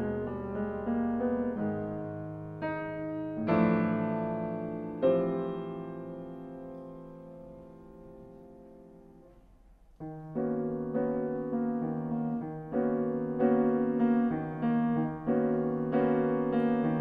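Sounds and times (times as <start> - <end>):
piano and string quartet chords: 0.0 - 17.0.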